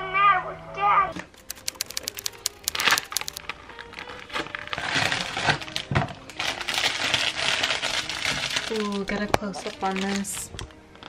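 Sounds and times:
sharp clicks: 0:01.2 - 0:03.4
plastic wrap crinkling: 0:02.0 - 0:11.0.

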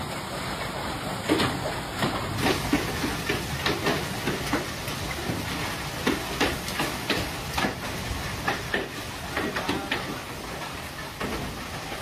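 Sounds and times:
rain and wind rushing: 0:00.0 - 0:12.0
hailstones striking hard surfaces: 0:02.3 - 0:10.4.

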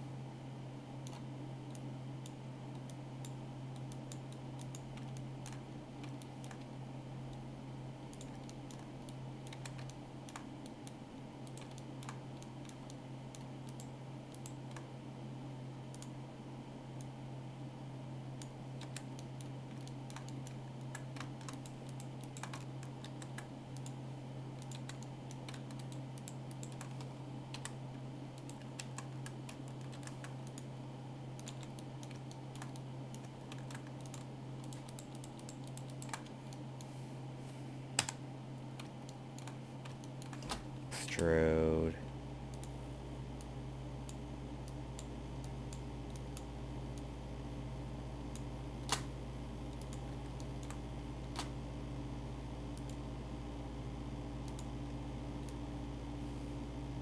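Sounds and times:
steady low hum: 0:00.0 - 0:57.0
keyboard and mouse clicks: 0:01.0 - 0:06.7, 0:08.1 - 0:14.9, 0:18.4 - 0:24.0, 0:24.6 - 0:27.8, 0:28.4 - 0:30.7, 0:31.4 - 0:36.9, 0:38.0 - 0:40.7, 0:49.7 - 0:51.5.

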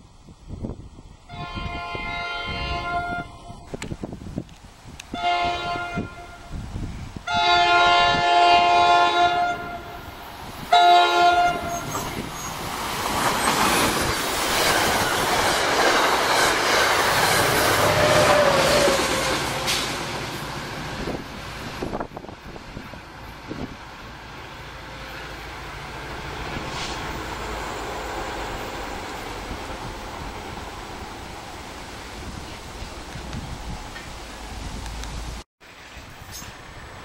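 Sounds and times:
train horn blasts: 0:01.3 - 0:03.6, 0:05.1 - 0:06.6, 0:07.2 - 0:10.1, 0:10.7 - 0:12.1, 0:17.3 - 0:20.0
train wheels on rails: 0:09.7 - 0:37.0.

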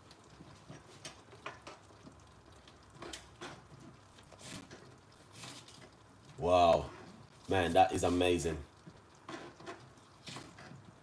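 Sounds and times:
food simmering with pops: 0:00.0 - 0:11.0.

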